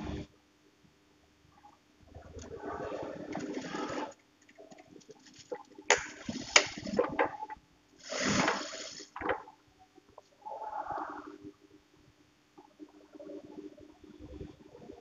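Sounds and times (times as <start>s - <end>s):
small clicks and scrapes: 1.6s - 11.2s.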